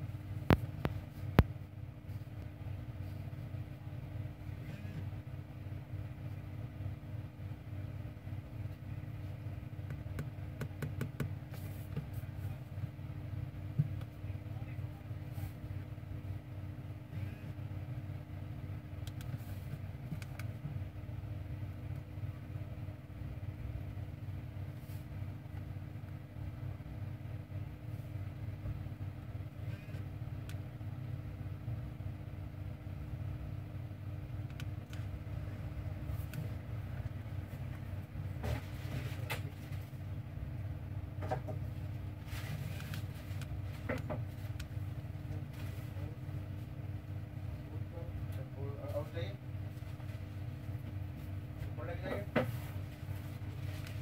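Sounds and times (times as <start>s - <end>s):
low background hum: 0.0s - 54.0s
faint clicks and taps: 0.4s - 1.6s, 9.8s - 12.2s, 19.0s - 20.7s, 34.4s - 35.2s.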